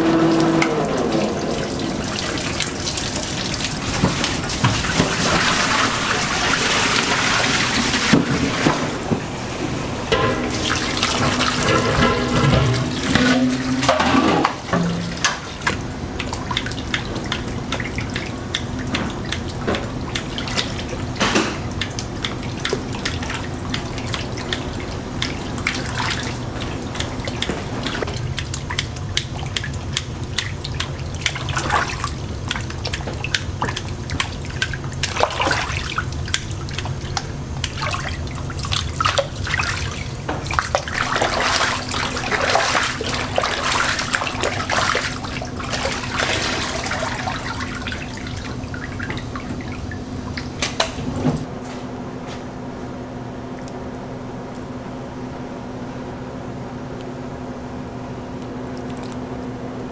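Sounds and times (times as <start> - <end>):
water splashing and sloshing: 0.0 - 51.5, 58.0 - 59.9
low machine hum: 0.0 - 59.9
water dripping: 0.2 - 7.2, 14.6 - 50.9, 58.0 - 59.6.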